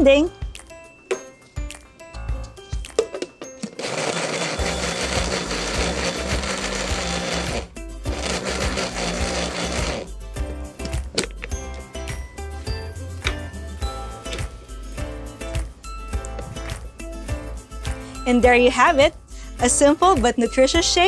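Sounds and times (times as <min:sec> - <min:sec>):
blender running: 0:03.8 - 0:10.1.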